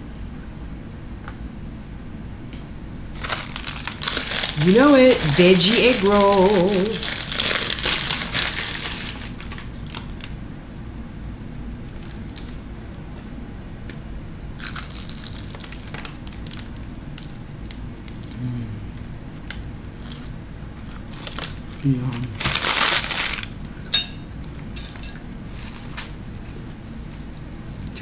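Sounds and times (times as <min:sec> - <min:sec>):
paper bag crinkling: 0:03.1 - 0:10.3, 0:14.6 - 0:16.8, 0:21.0 - 0:23.6
crunchy bites of food: 0:03.2 - 0:04.6, 0:14.6 - 0:23.7.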